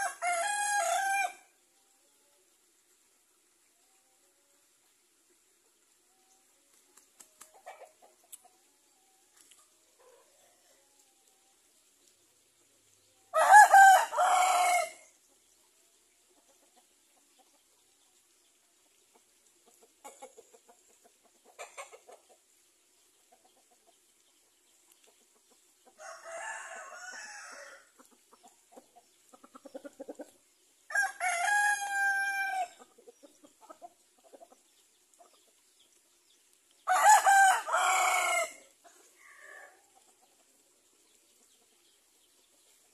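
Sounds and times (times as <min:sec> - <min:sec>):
roosters crowing: 0:00.0 - 0:01.5, 0:13.3 - 0:15.1, 0:26.0 - 0:27.9, 0:30.9 - 0:32.8, 0:36.9 - 0:39.8
chicken clucking: 0:05.6 - 0:11.5, 0:15.2 - 0:30.6, 0:32.6 - 0:42.9.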